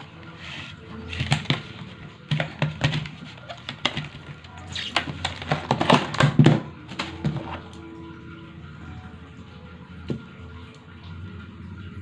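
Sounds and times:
plastic packaging crackling: 0.0 - 7.6.

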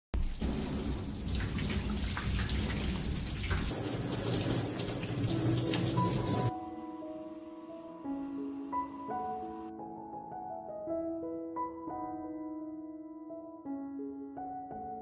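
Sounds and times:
tap water splashing into a sink: 0.2 - 6.5.

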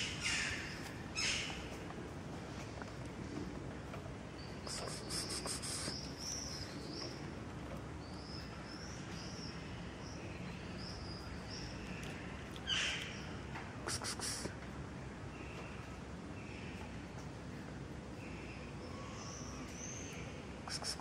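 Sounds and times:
small birds chirping: 0.0 - 14.6, 15.2 - 21.0.

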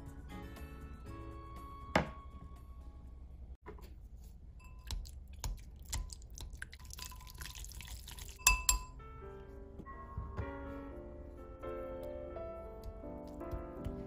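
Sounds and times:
wet squishing stir: 3.9 - 8.8, 11.6 - 14.0
whisk clinking against glass bowl: 4.6 - 6.1, 8.4 - 9.0.

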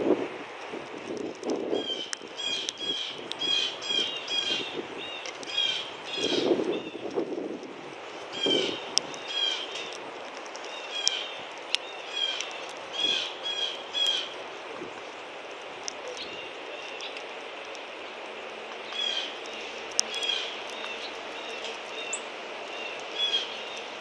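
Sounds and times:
songbird chirping: 10.6 - 14.4, 16.0 - 24.0.

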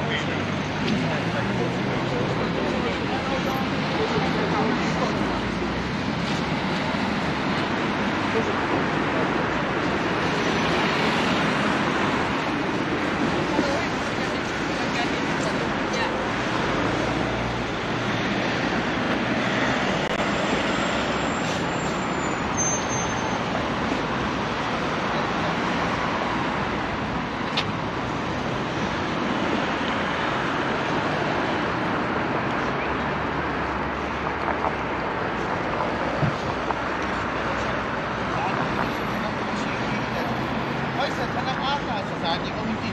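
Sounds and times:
road traffic noise: 0.0 - 42.9.

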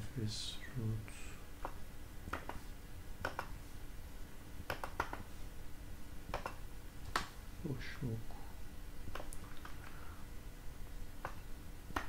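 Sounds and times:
low room hum: 0.0 - 12.0
computer mouse clicking: 1.6 - 2.6, 3.2 - 3.6, 4.7 - 5.3, 6.3 - 7.3, 9.1 - 9.8, 11.2 - 12.0.

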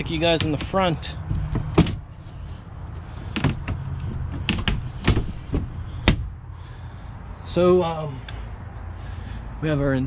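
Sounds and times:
steady low rumble: 0.0 - 10.0.

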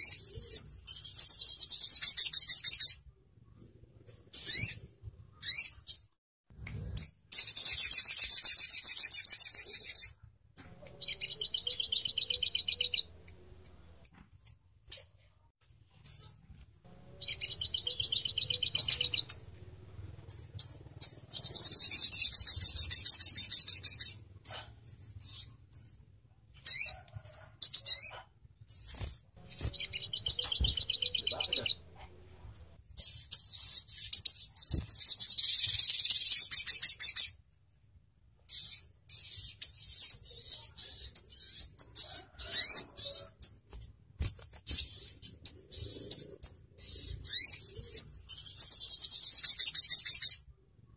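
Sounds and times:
bird chirps: 0.0 - 13.6, 15.9 - 37.4, 38.5 - 43.6, 44.2 - 50.5
bird singing high trills: 11.0 - 13.2, 17.1 - 19.5, 20.3 - 24.2, 28.8 - 31.9.

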